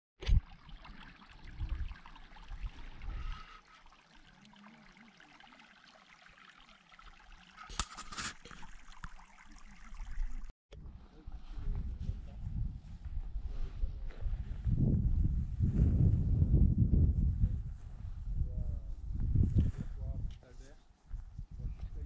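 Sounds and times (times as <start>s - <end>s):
stream trickling over rocks: 0.2s - 10.5s
wind rumble on microphone: 1.4s - 3.5s, 10.8s - 20.5s, 21.1s - 22.0s.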